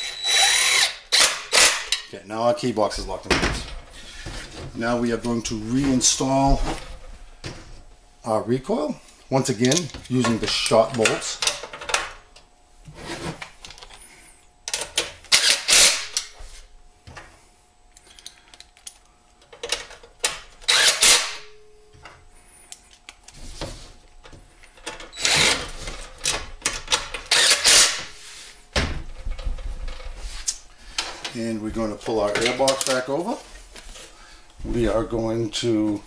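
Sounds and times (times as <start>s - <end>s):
cordless drill driving bolts: 0.0s - 2.0s, 15.3s - 16.3s, 20.6s - 21.5s, 25.1s - 25.8s, 27.2s - 28.1s.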